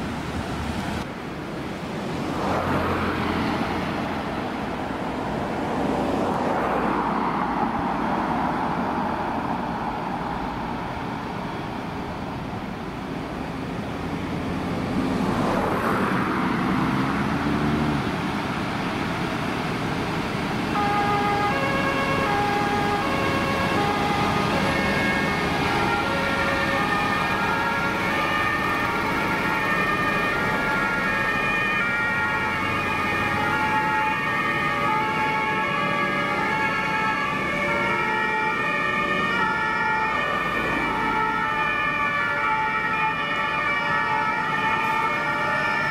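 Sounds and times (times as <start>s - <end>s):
vehicle engines passing: 0.0s - 45.9s
two-tone emergency sirens: 18.8s - 45.9s.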